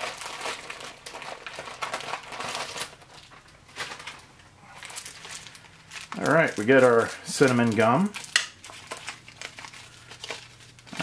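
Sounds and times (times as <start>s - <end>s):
plastic packet crinkling: 0.0s - 11.0s.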